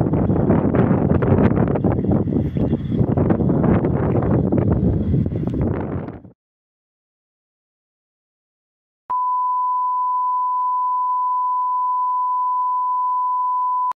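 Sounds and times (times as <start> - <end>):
pure test tone beep: 9.1 - 14.0.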